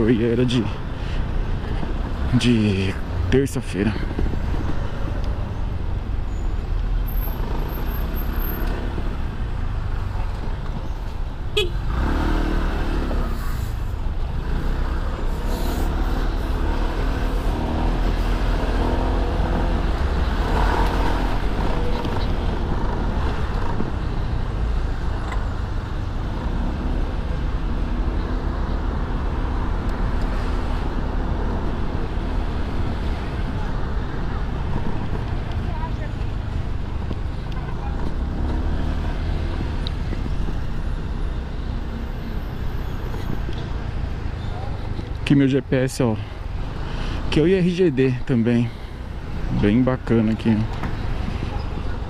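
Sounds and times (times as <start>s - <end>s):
traffic vehicles: 0.0s - 52.0s.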